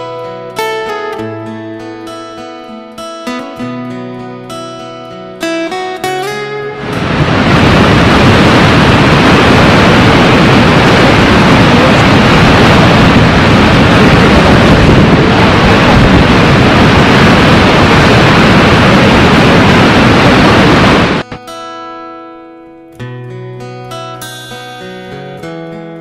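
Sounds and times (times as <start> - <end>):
waterfall rushing: 6.8 - 21.2.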